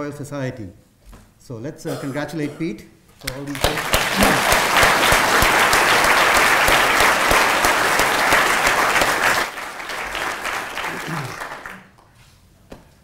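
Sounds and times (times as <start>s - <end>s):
audience applauding: 3.2s - 12.0s.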